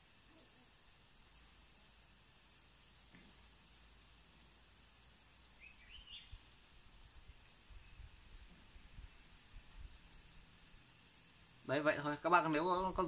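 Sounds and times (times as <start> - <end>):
outdoor background hiss: 0.0 - 13.0
faint high bird chirps: 0.3 - 2.3, 5.6 - 7.2.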